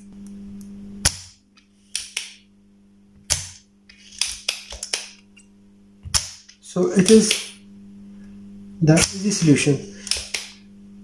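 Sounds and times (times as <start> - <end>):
low electrical hum: 0.0 - 11.0
tool tapping circuit board: 6.1 - 7.6.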